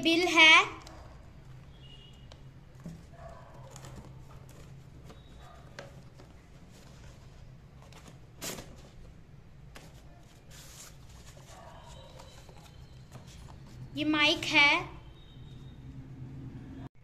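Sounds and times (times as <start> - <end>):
cardboard rustling and scraping: 2.7 - 13.9.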